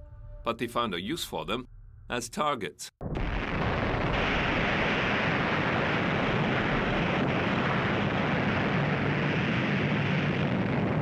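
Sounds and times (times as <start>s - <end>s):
explosion rushing roar: 3.0s - 11.0s.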